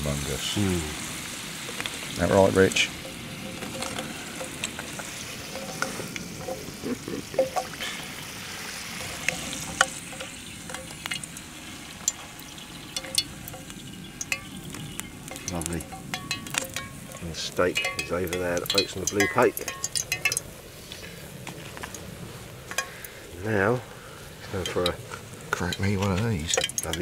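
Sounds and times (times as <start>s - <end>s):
chips sizzling in oil: 0.0s - 27.0s
oil popping and crackling: 0.0s - 27.0s
metal spatula scraping pan: 2.8s - 11.3s.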